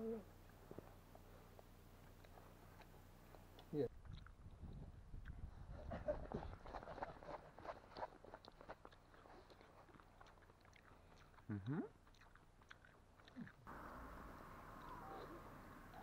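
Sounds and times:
low hum-like voice: 0:00.0 - 0:00.3, 0:14.8 - 0:16.0
chewing with small crunches: 0:00.3 - 0:16.0
soft steady hiss: 0:09.2 - 0:16.0.

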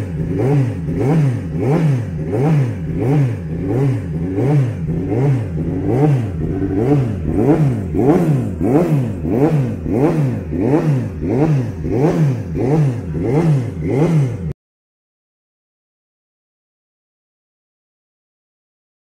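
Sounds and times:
motorcycle engine revving: 0:00.0 - 0:14.6.

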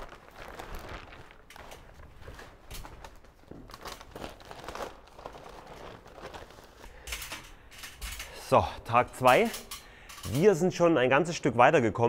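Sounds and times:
plastic membrane crinkling: 0:00.0 - 0:08.4.

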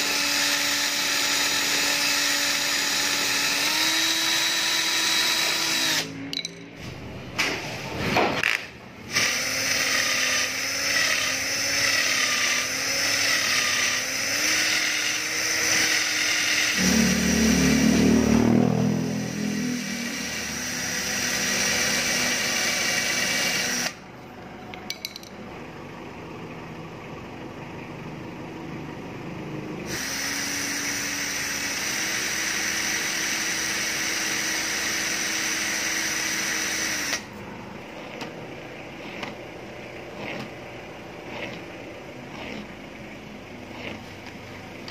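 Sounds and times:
cordless drill running: 0:00.0 - 0:06.2, 0:09.0 - 0:17.1, 0:19.1 - 0:24.0, 0:29.9 - 0:37.3, 0:41.2 - 0:42.8, 0:43.6 - 0:44.9
file and sandpaper on turning metal: 0:39.0 - 0:39.4, 0:40.2 - 0:40.5, 0:41.2 - 0:41.7, 0:42.3 - 0:42.8.

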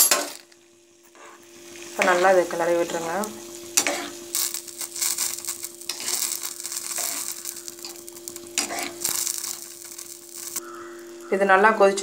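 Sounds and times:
metal spoon stirring in a pan: 0:03.6 - 0:10.6.

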